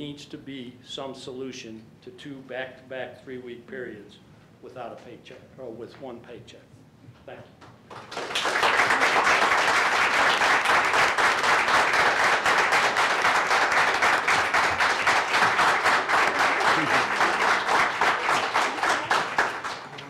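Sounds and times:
audience applauding: 0:07.9 - 0:20.0.

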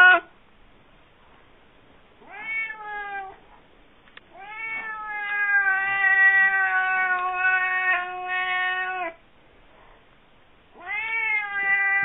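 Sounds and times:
cat yowling: 0:00.0 - 0:00.3, 0:02.2 - 0:03.4, 0:04.3 - 0:09.2, 0:10.8 - 0:12.0.

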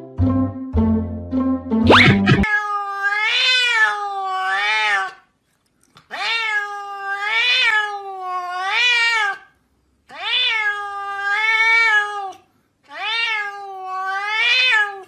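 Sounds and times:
cat meowing: 0:01.9 - 0:05.2, 0:06.1 - 0:09.5, 0:10.1 - 0:15.0.

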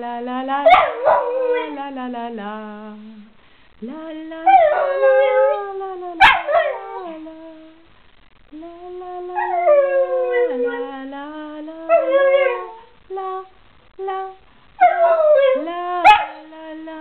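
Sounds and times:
woman singing: 0:00.0 - 0:07.9, 0:08.5 - 0:17.0
dog howling: 0:00.7 - 0:01.8, 0:04.5 - 0:07.3, 0:09.3 - 0:11.0, 0:11.9 - 0:12.9, 0:14.1 - 0:16.4.

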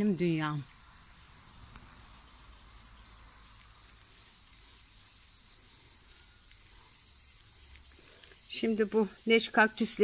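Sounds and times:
insects chirring: 0:00.0 - 0:10.0.

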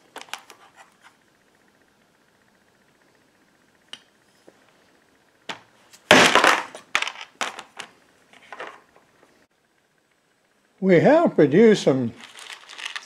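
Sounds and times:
lead pieces rattling: 0:12.2 - 0:13.0.

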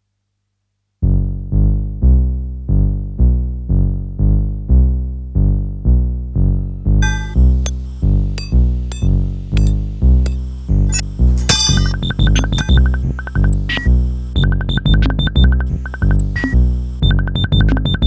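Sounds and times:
low synthesizer bass notes: 0:01.0 - 0:18.0
high ringing tones: 0:07.0 - 0:07.8, 0:08.4 - 0:16.7.

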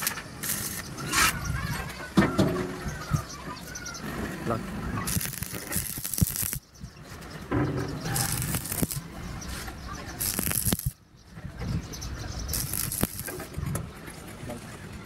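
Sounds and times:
welding arc crackling and hissing: 0:00.0 - 0:01.4, 0:05.0 - 0:06.6, 0:08.1 - 0:09.1, 0:10.2 - 0:11.0, 0:12.5 - 0:13.4.

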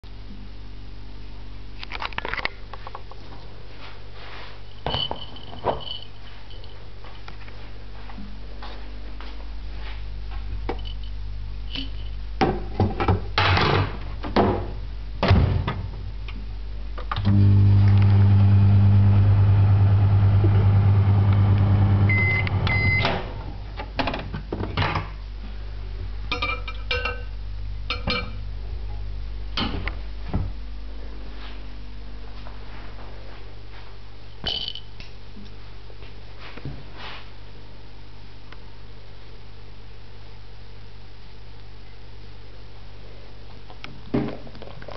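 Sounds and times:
microwave oven humming: 0:07.9 - 0:34.3
short beeps: 0:22.1 - 0:23.1.

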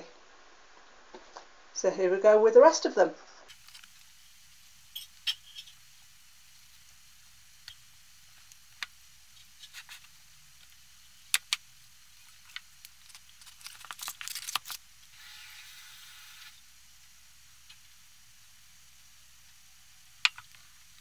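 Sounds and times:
short steady hiss: 0:03.4 - 0:13.4.

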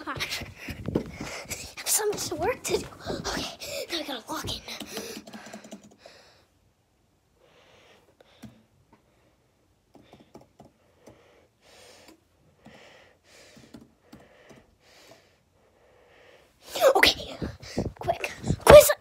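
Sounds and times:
laptop keyboard keystrokes: 0:04.8 - 0:06.1.

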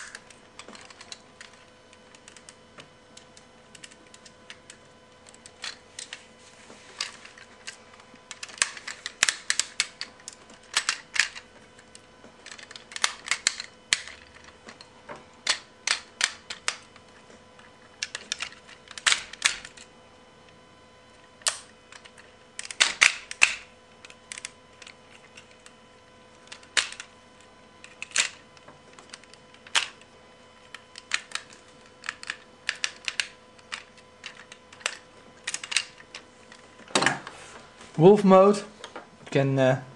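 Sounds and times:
plastic toy parts clicking: 0:00.0 - 0:02.6, 0:03.2 - 0:06.2, 0:07.0 - 0:16.9, 0:18.0 - 0:19.9, 0:21.4 - 0:25.7, 0:26.4 - 0:27.1, 0:27.8 - 0:30.0, 0:30.6 - 0:36.2.

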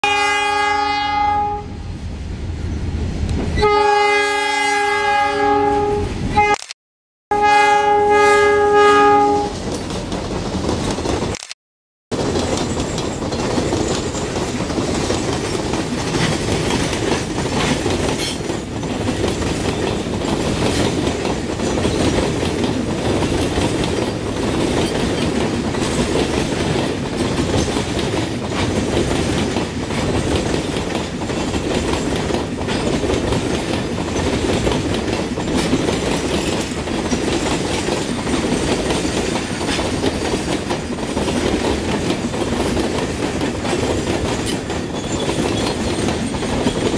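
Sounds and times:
steady train rumble: 0:00.0 - 0:06.5, 0:07.3 - 0:11.4, 0:12.1 - 0:46.9
wagon wheels clacking on rails: 0:09.4 - 0:11.4, 0:12.1 - 0:46.9.

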